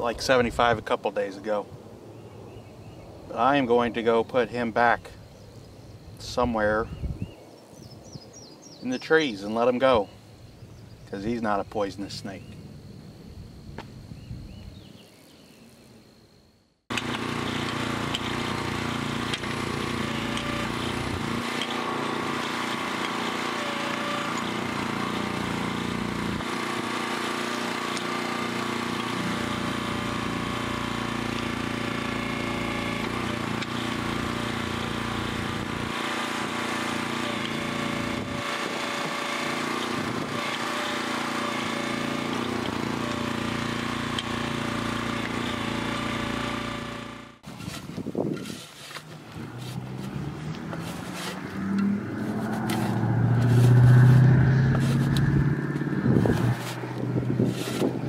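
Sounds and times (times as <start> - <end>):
backhoe engine running: 16.9 - 58.0
hydraulic bucket digging: 16.9 - 58.0.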